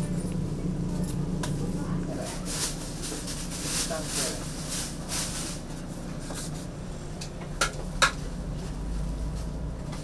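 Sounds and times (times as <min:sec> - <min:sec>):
steady low hum: 0:00.0 - 0:03.9.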